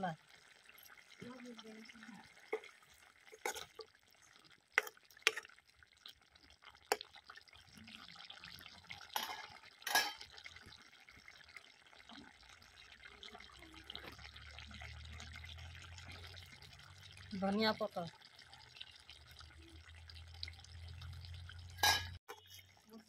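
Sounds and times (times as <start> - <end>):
curry simmering and bubbling: 0.0 - 23.0
metal ladle clinking on pan: 9.2 - 10.3, 21.8 - 22.2.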